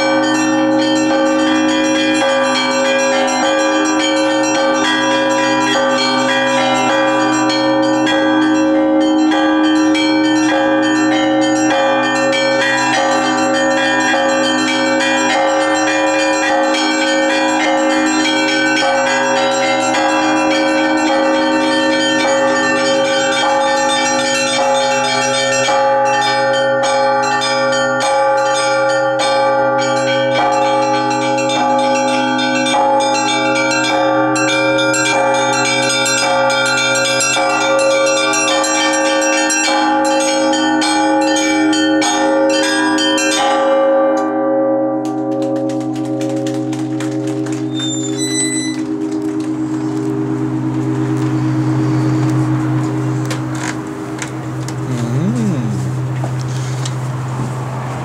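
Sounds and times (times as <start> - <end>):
large bells ringing: 0.0 - 58.0
small bells struck rapidly: 45.1 - 48.8.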